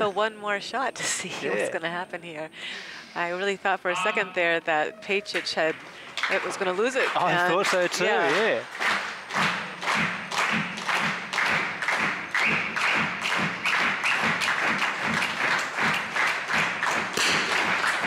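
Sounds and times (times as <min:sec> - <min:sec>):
spectators clapping in unison: 0:05.3 - 0:18.0
low thud on beat: 0:10.0 - 0:14.4.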